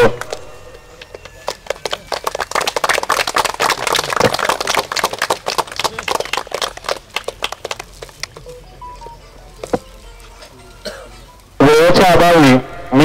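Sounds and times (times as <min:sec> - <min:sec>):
people clapping: 0:00.0 - 0:08.6.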